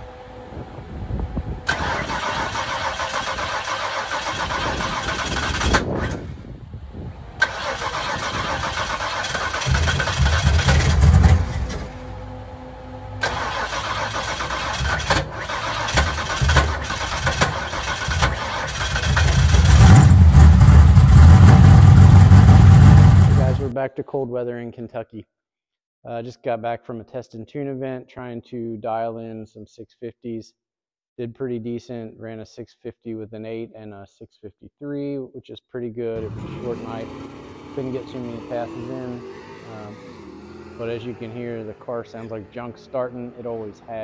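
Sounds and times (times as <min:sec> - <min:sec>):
starter cranking car engine: 0:01.7 - 0:06.3, 0:07.4 - 0:12.0, 0:13.2 - 0:23.7, 0:36.2 - 0:39.2
car engine running loudly: 0:07.4 - 0:23.7, 0:36.2 - 0:44.0.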